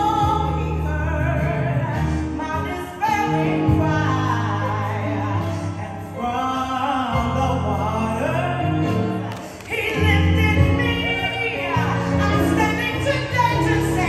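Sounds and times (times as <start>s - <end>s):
woman singing lead: 0.0s - 14.0s.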